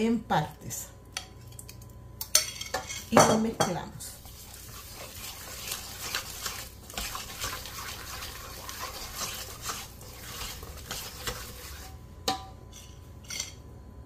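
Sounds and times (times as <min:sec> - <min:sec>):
whisk scraping in metal bowl: 0:04.2 - 0:12.0.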